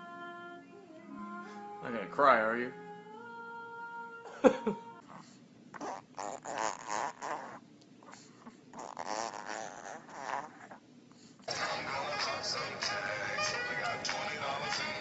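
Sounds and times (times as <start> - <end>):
dog whining: 5.1 - 10.8.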